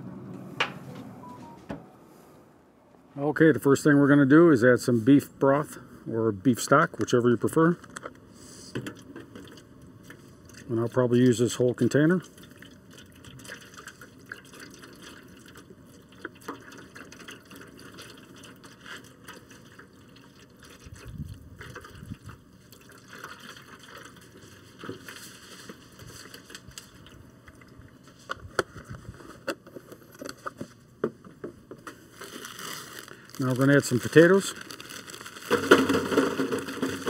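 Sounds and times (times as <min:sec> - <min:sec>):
broth pouring and splashing: 0:11.9 - 0:28.2, 0:32.2 - 0:37.0.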